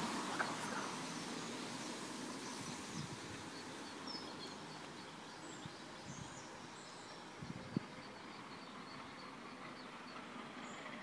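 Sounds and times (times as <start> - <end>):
small birds chirping: 0.0 - 11.0
steady low hiss: 0.0 - 11.0.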